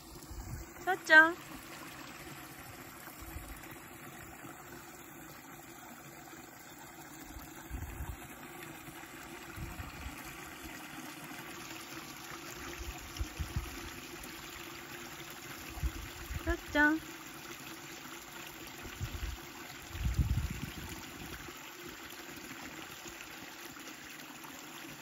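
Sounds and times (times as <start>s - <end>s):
running water trickling: 0.0s - 25.0s.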